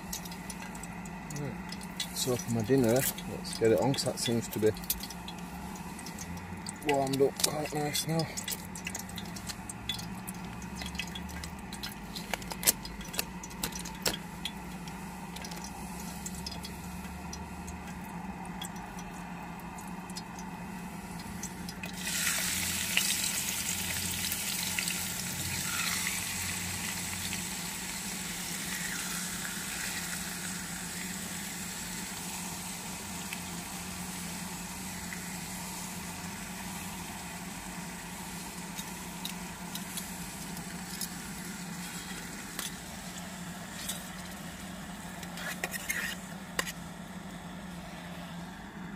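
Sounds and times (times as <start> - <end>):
meat sizzling in a hot pan: 21.4 - 43.1.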